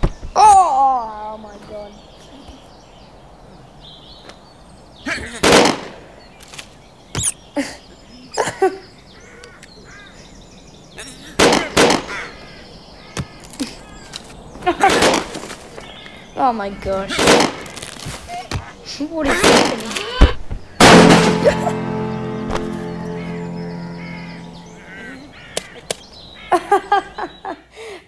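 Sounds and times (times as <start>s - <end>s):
bird calls: 0.0s - 28.0s
cartoon pistol shots: 5.4s - 6.0s, 11.4s - 12.1s, 17.1s - 17.8s, 19.4s - 20.0s, 20.8s - 22.8s
crows cawing: 8.6s - 18.0s, 18.6s - 27.9s.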